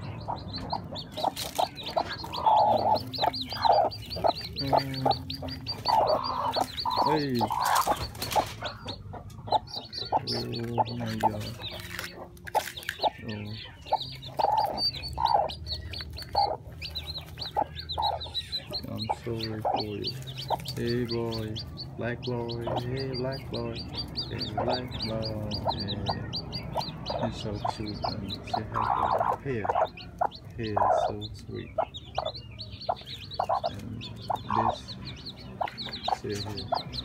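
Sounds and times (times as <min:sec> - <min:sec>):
hen clucking low: 0:00.0 - 0:12.4, 0:21.5 - 0:37.0
chicks peeping: 0:00.0 - 0:37.0.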